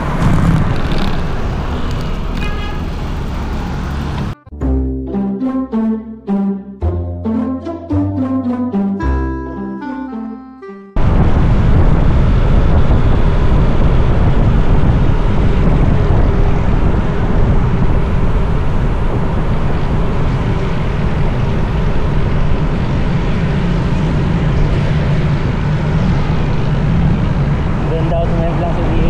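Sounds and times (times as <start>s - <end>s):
wind buffeting microphone: 11.0s - 29.0s.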